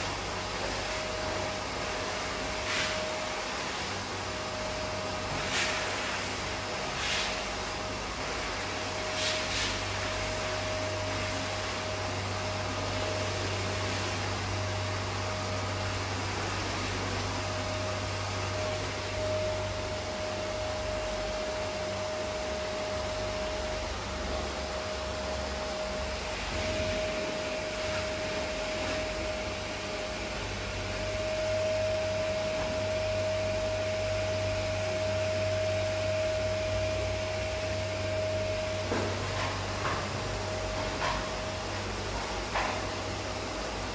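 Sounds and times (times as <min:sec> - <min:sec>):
vacuum cleaner running: 0:00.0 - 0:43.9.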